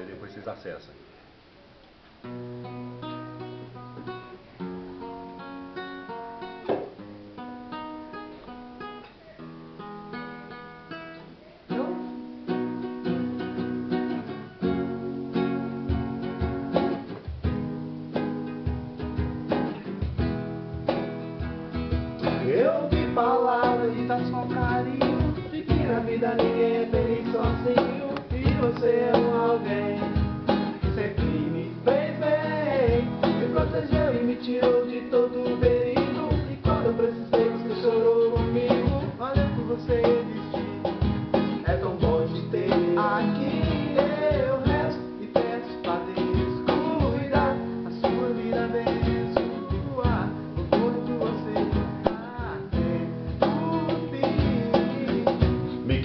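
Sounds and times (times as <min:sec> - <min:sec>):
acoustic guitar strumming: 0:02.2 - 0:56.0
young man singing: 0:22.2 - 0:56.0.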